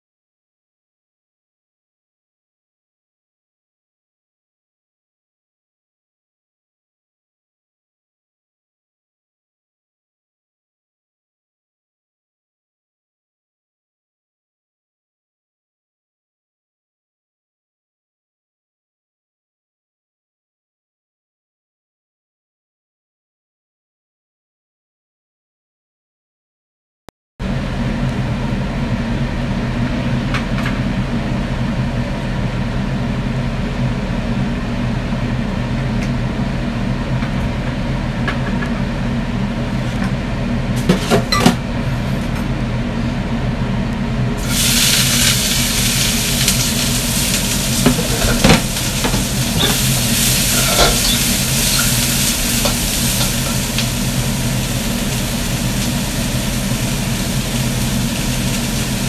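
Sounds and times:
vegetables sizzling in a wok: 44.4 - 59.0.

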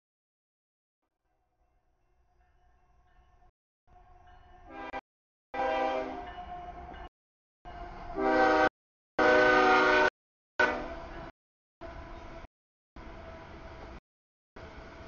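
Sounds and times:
locomotive air horn blasts: 4.7 - 5.0, 5.6 - 6.3, 8.1 - 11.1.

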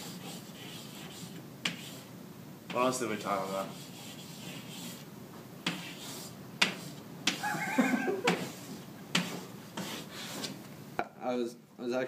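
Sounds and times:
chalk scraping: 0.0 - 2.1, 2.8 - 7.6, 8.2 - 10.6
chalk tapping on blackboard: 0.0 - 2.1, 3.6 - 5.0, 5.6 - 7.5, 8.2 - 10.6.

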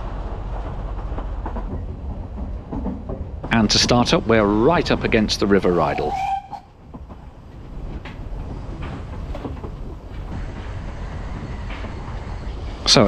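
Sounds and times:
train wheels rumbling: 0.0 - 13.0.

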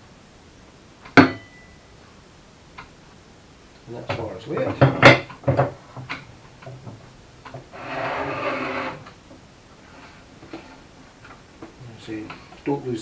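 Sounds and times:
metal scraping across tabletop: 7.6 - 9.2.

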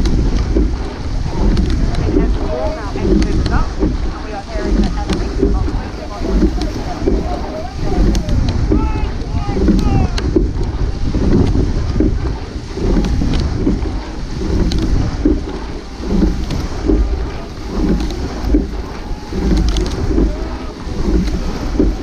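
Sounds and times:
low regular pulsing: 0.0 - 22.0
wind buffeting microphone: 0.0 - 22.0
faint distant shouts: 6.0 - 10.2, 18.9 - 21.0.

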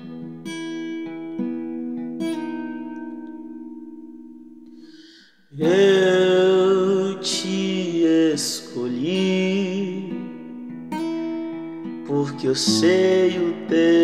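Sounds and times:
acoustic guitar strumming: 0.0 - 14.0
man singing: 5.5 - 10.6, 12.0 - 14.0.

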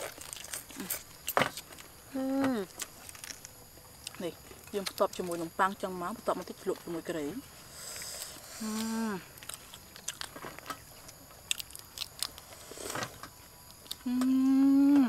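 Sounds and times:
person chewing crunchy food: 0.0 - 2.0, 2.7 - 5.0, 7.8 - 14.2
hummed vocal sound: 14.0 - 15.0.

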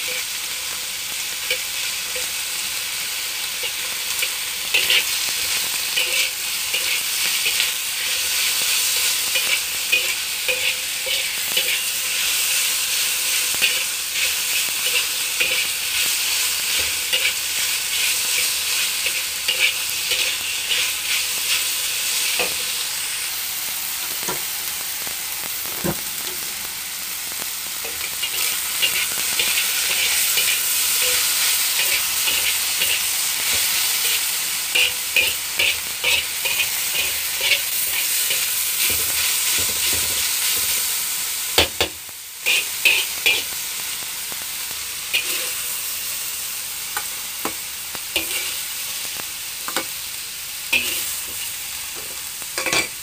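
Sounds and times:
meat and garlic sizzling in a wok: 0.0 - 53.0
metal spatula scraping a wok: 3.6 - 12.3, 16.4 - 22.7, 27.8 - 40.7, 42.4 - 43.5, 45.1 - 45.7, 48.1 - 48.6, 50.7 - 53.0.

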